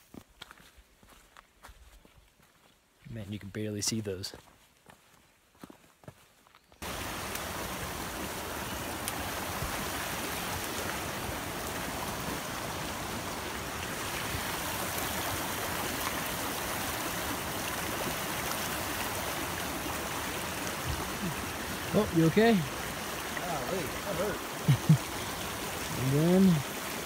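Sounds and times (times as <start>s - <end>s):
stream running over rocks: 6.8s - 27.0s.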